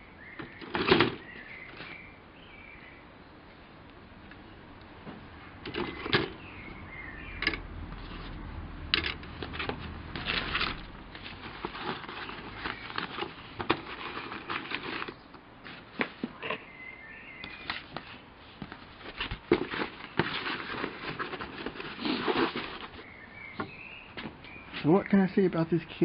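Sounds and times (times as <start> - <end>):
paper and cardboard rustling: 0.4 - 2.1, 5.7 - 6.5, 9.0 - 16.5, 17.5 - 24.9.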